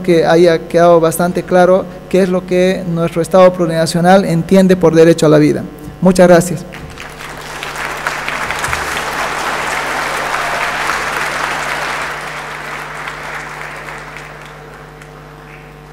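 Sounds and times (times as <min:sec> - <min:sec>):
audience applauding: 0:06.7 - 0:15.7.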